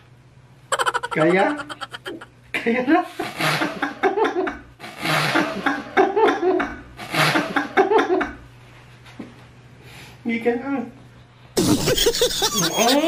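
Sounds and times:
man laughing hard: 0:00.7 - 0:02.3, 0:11.6 - 0:13.0.

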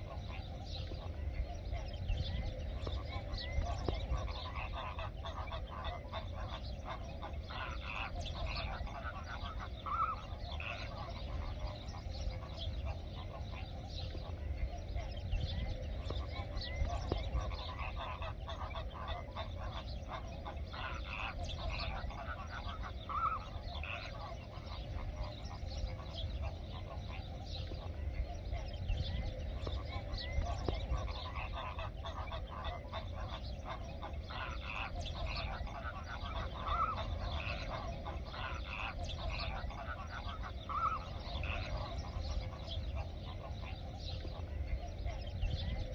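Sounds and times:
flamingos honking and gabbling: 0:00.0 - 0:45.9
steady low rumble: 0:00.0 - 0:45.9.

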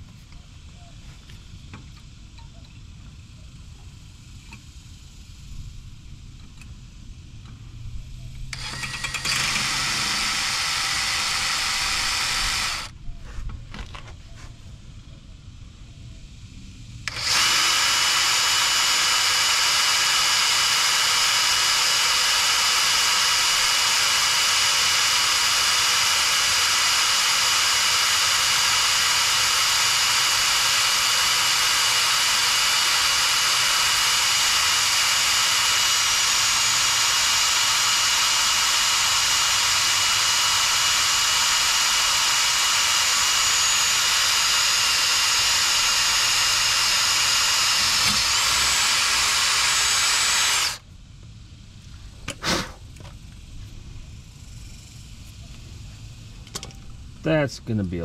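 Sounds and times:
power drill boring metal: 0:08.5 - 0:12.9, 0:17.0 - 0:50.8.

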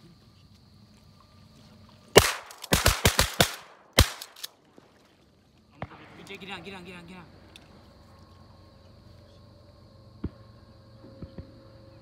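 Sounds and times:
shotgun shots: 0:02.2 - 0:04.5.

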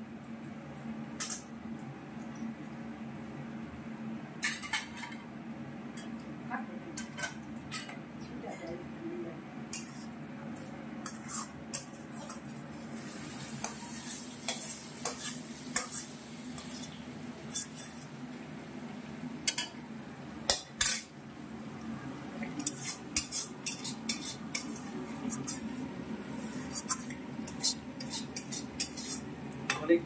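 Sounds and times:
metal spoon scraping a wok: 0:09.7 - 0:10.2, 0:11.0 - 0:12.6, 0:13.6 - 0:18.1, 0:22.6 - 0:25.7, 0:26.4 - 0:29.3
oil sizzling: 0:11.0 - 0:29.8.

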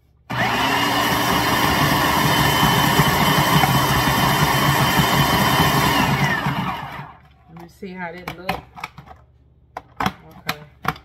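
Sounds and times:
blade churning wet vegetables: 0:00.3 - 0:07.2
food processor motor whine: 0:00.3 - 0:07.2.

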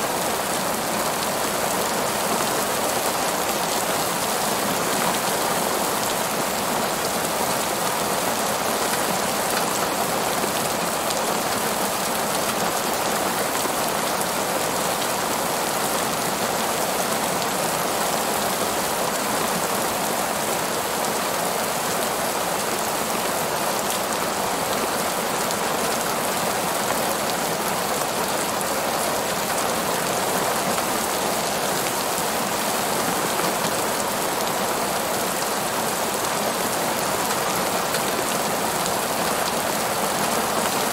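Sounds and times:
heavy rain on pavement: 0:00.0 - 0:40.9.

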